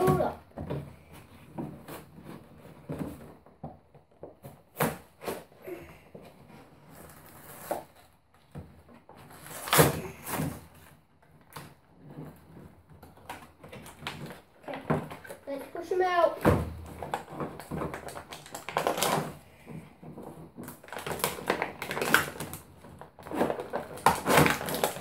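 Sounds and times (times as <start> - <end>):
packaging being torn open: 20.8 - 22.6, 23.2 - 25.0.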